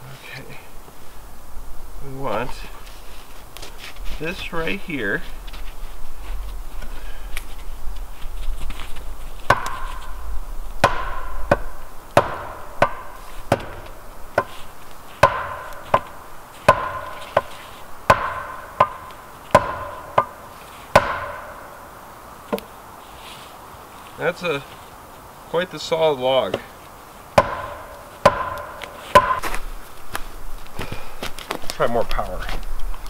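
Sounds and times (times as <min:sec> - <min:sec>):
axe chopping log: 0:09.5 - 0:10.1, 0:10.8 - 0:14.6, 0:15.2 - 0:17.5, 0:18.1 - 0:21.7, 0:27.4 - 0:29.6.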